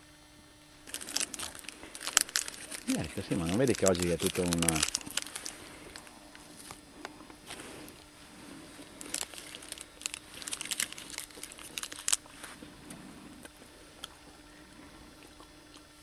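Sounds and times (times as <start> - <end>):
leaves and stones crunching underfoot: 0.8 - 6.8, 8.8 - 12.6.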